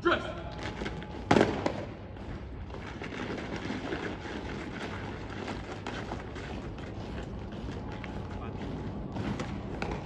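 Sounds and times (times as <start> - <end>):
quick shuffling steps: 0.0 - 10.0.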